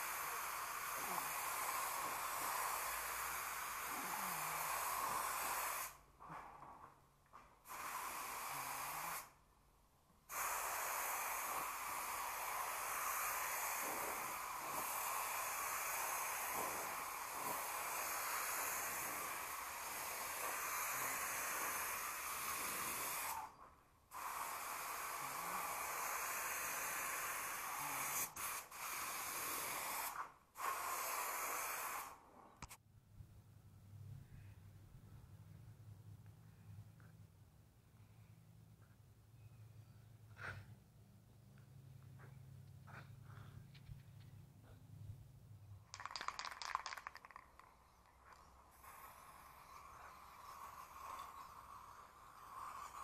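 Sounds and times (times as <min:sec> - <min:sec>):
steady hiss: 0:00.0 - 0:06.2, 0:07.3 - 0:09.5, 0:10.2 - 0:32.8, 0:45.9 - 0:53.0.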